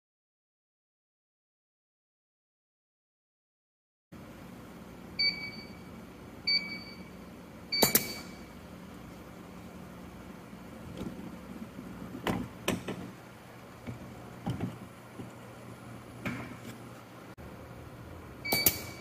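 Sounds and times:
low steady hum: 4.2s - 19.0s
pneumatic actuator clicks and knocks: 12.2s - 13.1s.

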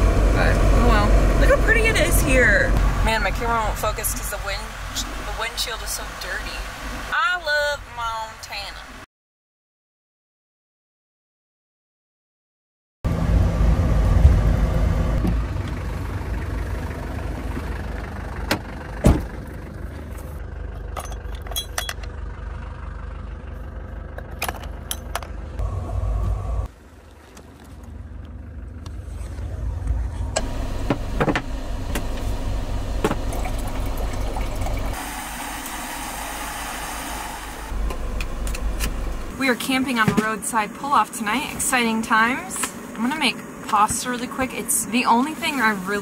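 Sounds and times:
truck engine and road rumble: 0.0s - 9.1s, 13.1s - 46.0s
gas stove burner hissing: 34.9s - 39.4s.

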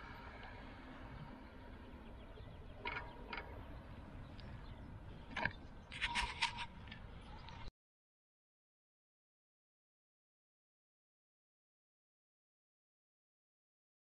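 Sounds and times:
bicycle rolling on pavement: 0.0s - 7.5s
bicycle clicks and rattles: 2.8s - 3.8s.

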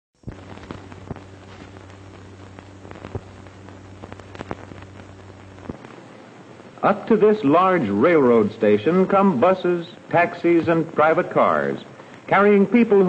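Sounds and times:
film crackles and pops: 0.2s - 6.9s, 11.9s - 12.9s
low hum and hiss: 0.2s - 13.0s.

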